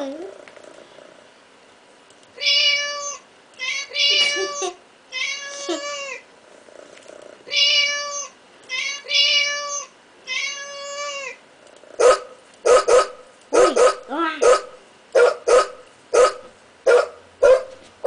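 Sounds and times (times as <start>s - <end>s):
recorded cat meows from toy speaker: 2.4s - 6.2s, 7.5s - 11.4s.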